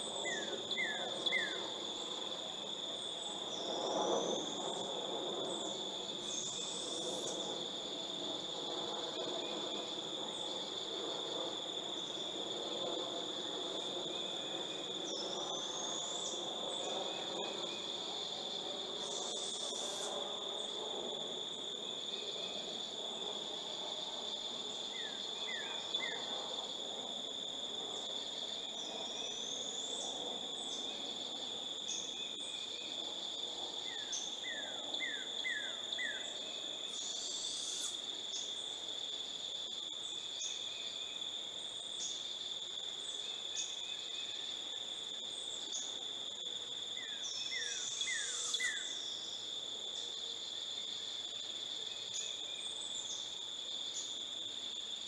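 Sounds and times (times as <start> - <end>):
crickets trilling: 0.0 - 55.0.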